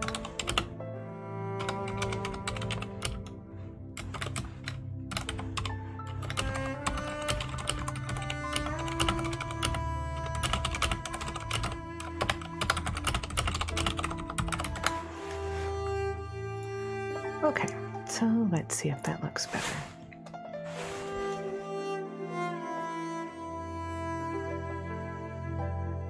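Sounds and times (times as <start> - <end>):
typing on computer keyboard: 0.0 - 0.7, 1.6 - 3.3, 4.0 - 14.9
cello music: 0.0 - 26.0.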